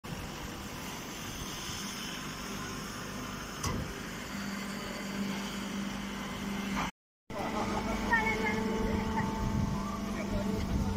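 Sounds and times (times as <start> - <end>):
hay baler mechanical hum: 0.1 - 10.9
low drone: 4.2 - 10.9.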